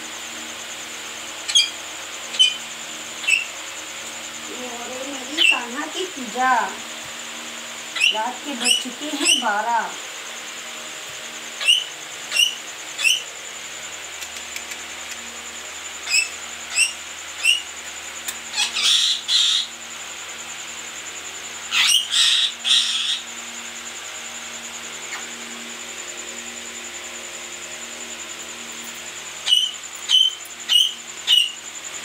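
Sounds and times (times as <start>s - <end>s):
faint high whine: 0.0s - 32.0s
high bird-like chirps: 29.4s - 31.6s.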